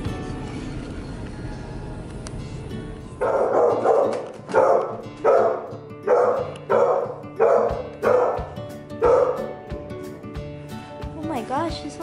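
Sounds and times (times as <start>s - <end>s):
dog barking: 3.2s - 9.5s.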